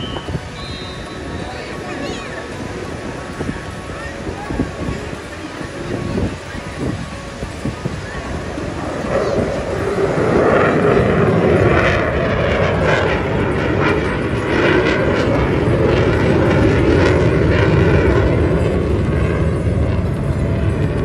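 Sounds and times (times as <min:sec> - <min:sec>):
fighter jet flying past: 0:07.5 - 0:21.0.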